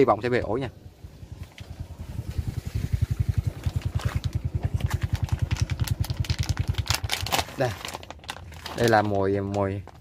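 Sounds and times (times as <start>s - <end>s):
small motorcycle engine putter: 1.3s - 8.9s.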